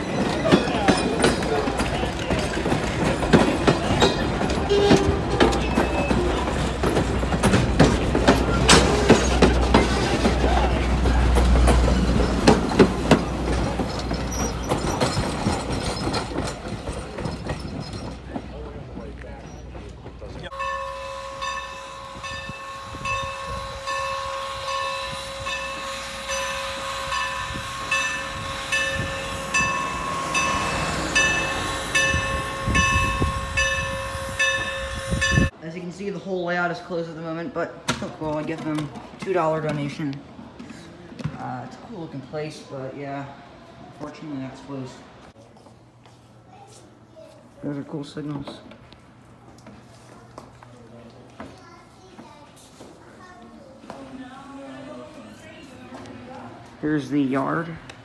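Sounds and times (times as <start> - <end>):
train wheels clacking over rail joints: 0.0 - 20.7
locomotive bell ringing: 0.0 - 35.5
train low rumble: 0.0 - 35.6.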